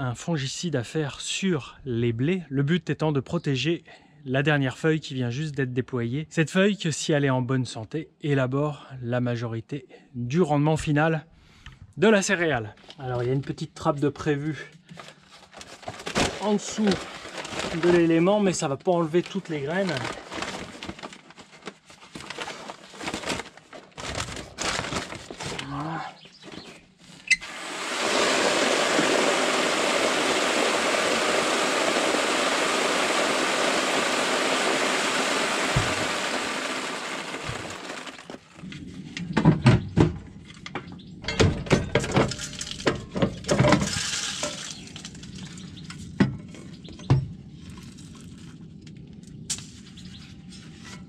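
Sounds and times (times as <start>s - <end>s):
seeds pouring into a sack: 15.7s - 25.8s, 27.4s - 38.5s, 43.8s - 45.6s.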